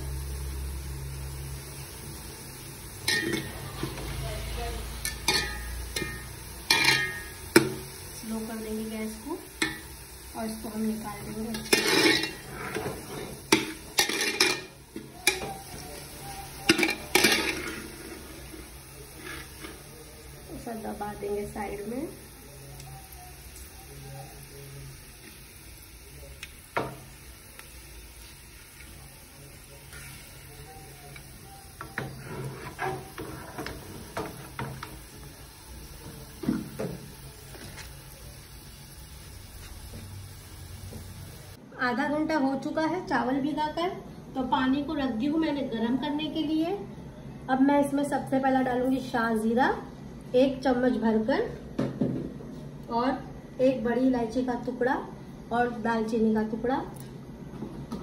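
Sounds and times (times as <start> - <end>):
oil sizzling: 0.0 - 41.6
utensils and pots clinking: 2.9 - 4.2, 4.8 - 8.0, 9.5 - 10.1, 11.2 - 19.8, 29.8 - 35.2.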